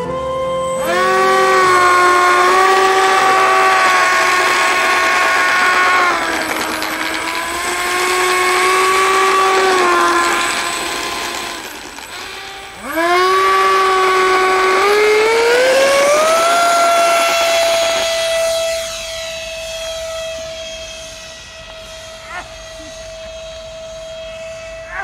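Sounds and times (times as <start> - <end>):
electric ducted fan motors whining: 0.0 - 25.0.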